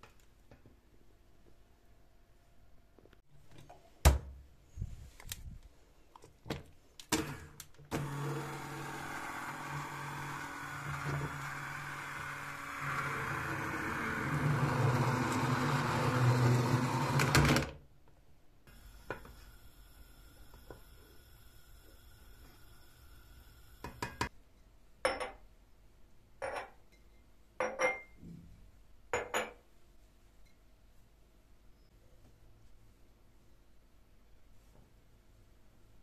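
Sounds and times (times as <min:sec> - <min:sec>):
immersion blender motor hum: 0:07.9 - 0:17.6.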